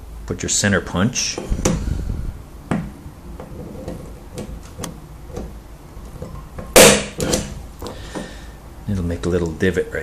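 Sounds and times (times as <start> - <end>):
center punch snapping: 6.8 - 7.6.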